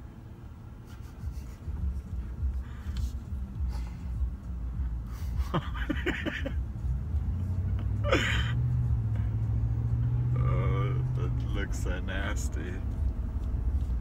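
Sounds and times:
steady low hum: 0.0 - 14.0
vehicle cabin road rumble: 0.0 - 14.0.

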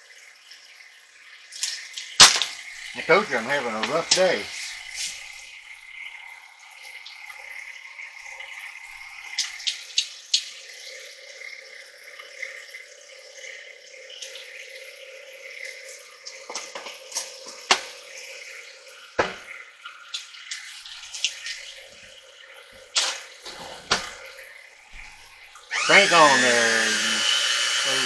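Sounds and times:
stand mixer motor hum: 25.7 - 28.0.

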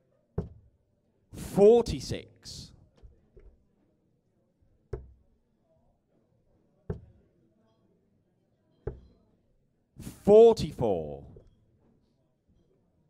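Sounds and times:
darts thudding into dartboard: 0.4 - 0.7, 5.0 - 5.2, 6.9 - 7.1, 8.9 - 9.1.

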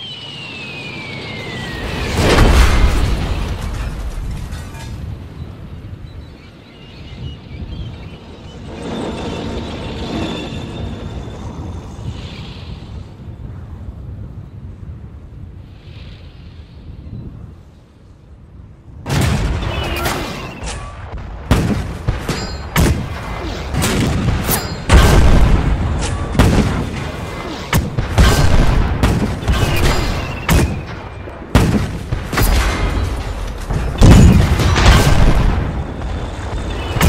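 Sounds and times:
cannon fire and explosions: 1.9 - 4.9, 19.0 - 37.0.

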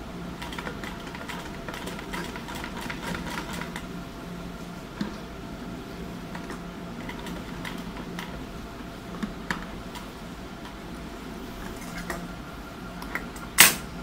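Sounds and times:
faint steady hum: 0.0 - 14.0
sewing machine clicks: 0.4 - 3.8.

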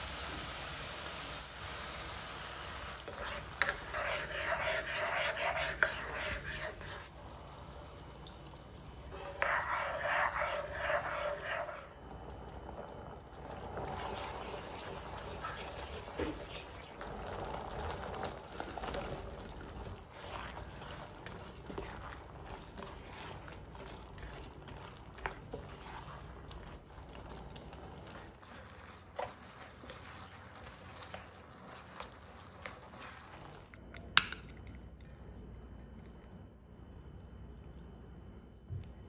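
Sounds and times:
spatula stirring thick gravy in pan: 2.4 - 33.8.

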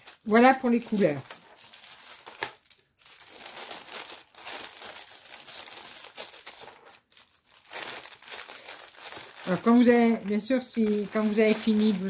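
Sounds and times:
packaging rustling and crackling: 0.0 - 12.0.

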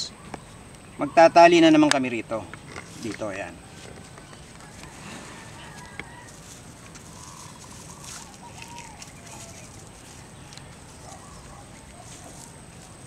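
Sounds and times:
distant birdcalls: 0.0 - 13.0
plastic tie and leaves crackling: 5.7 - 13.0.

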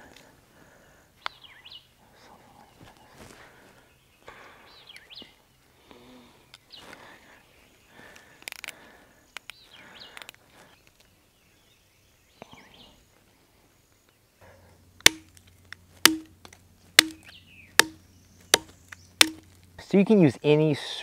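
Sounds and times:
hatchet striking wood: 15.0 - 15.4, 16.0 - 16.4, 17.0 - 19.5.

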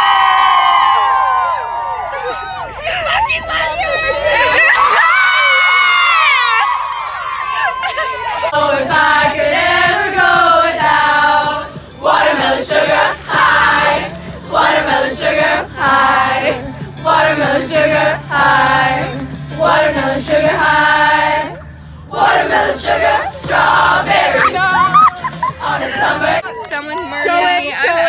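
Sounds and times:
women singing in unison: 8.4 - 26.5.

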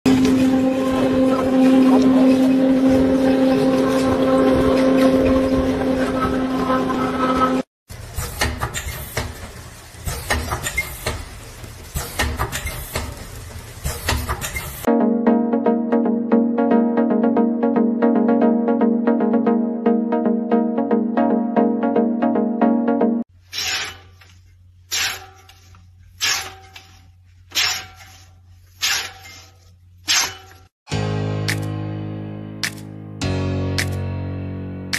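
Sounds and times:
reel blades swiping: 23.5 - 30.7.

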